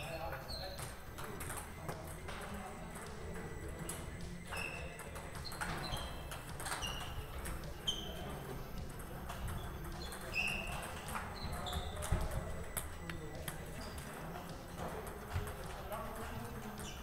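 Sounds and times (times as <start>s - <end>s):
table tennis ball clicks: 3.9s - 8.2s.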